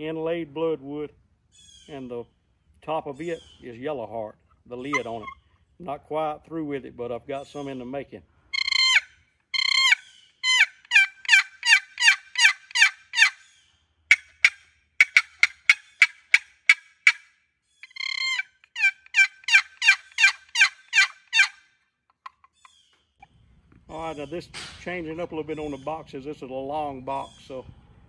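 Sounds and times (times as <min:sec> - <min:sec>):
turkey box call yelps: 0:04.8 - 0:05.5, 0:08.5 - 0:23.3.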